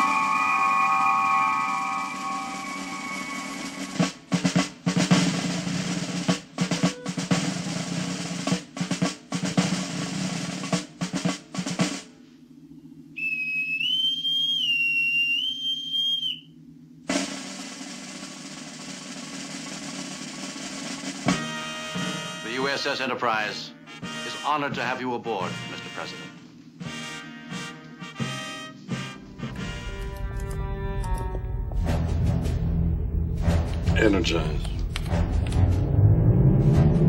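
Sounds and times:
boatswain's pipe whistle: 0.0 - 4.2, 13.2 - 16.5
snare drum rolls: 0.0 - 12.2, 17.1 - 22.8.

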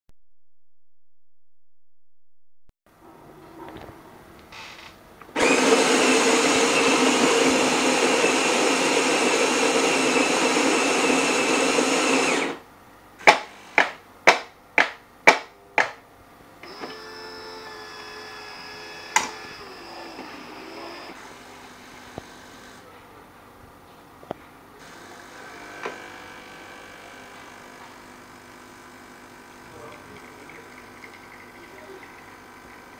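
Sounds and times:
coffee grinder running: 5.4 - 12.6, 16.7 - 22.8, 24.8 - 32.9
pump hum: 24.8 - 32.9.

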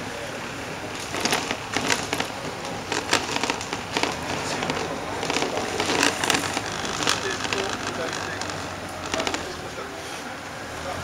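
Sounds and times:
vehicle low rumble: 0.0 - 11.0
sharp crackles and clicks: 1.0 - 9.7.

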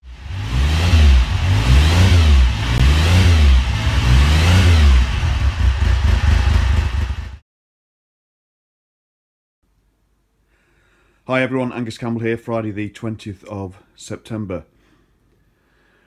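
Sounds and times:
motorcycle engine revving: 0.0 - 7.4.

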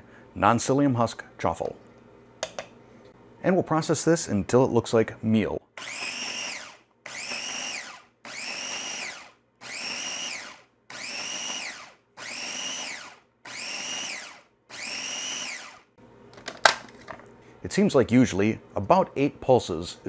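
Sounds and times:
food processor motor pulsing: 5.8 - 15.9.

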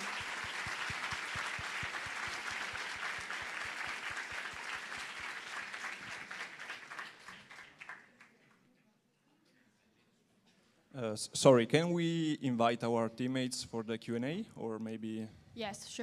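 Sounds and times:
audience applauding: 0.0 - 8.4.

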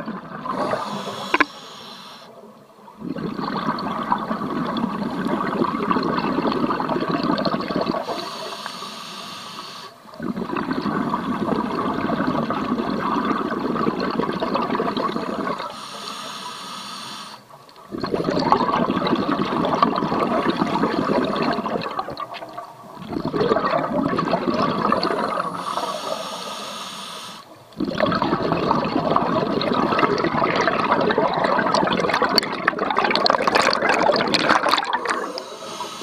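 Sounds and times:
underwater bubbling exhalations: 0.0 - 1.7, 2.9 - 8.3, 10.1 - 15.8, 17.8 - 26.3, 27.6 - 36.0
regulator inhalation hiss: 0.5 - 2.4, 8.0 - 10.1, 15.3 - 17.5, 25.1 - 27.6, 35.1 - 36.0.

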